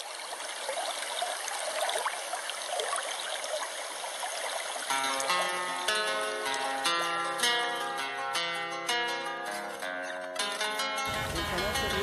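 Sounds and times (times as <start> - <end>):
plucked-string music: 4.9 - 12.0.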